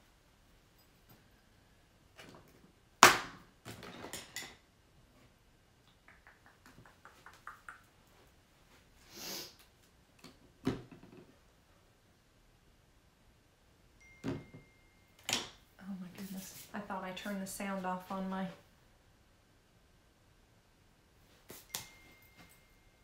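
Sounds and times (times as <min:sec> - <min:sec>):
brief hiss: 0:09.0 - 0:09.6.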